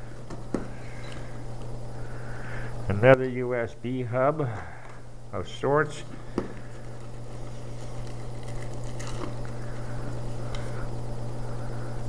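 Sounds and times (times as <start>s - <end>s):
low electrical hum: 0.0s - 12.0s
fabric bag and cables rustling: 6.7s - 9.9s.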